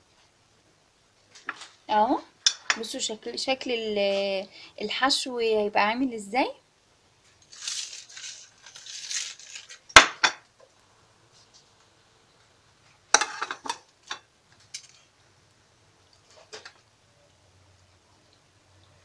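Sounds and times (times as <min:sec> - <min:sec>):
plate set down on stone counter: 0:10.0 - 0:10.4, 0:13.1 - 0:15.0.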